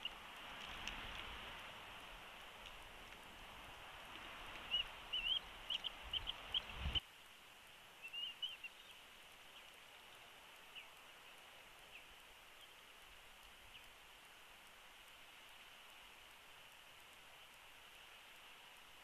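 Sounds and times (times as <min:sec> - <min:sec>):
wind rumbling on microphone: 0:00.0 - 0:07.0
eagle chittering calls: 0:04.6 - 0:07.0.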